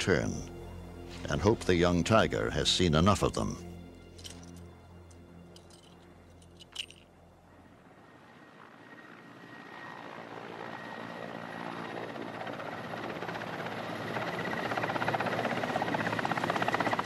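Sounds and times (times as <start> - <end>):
helicopter rotor chop: 7.6 - 17.0.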